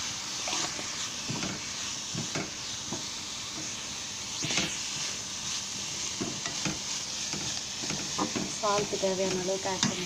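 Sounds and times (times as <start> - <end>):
onions sizzling in oil: 0.0 - 10.0
spatula scraping: 0.4 - 2.6.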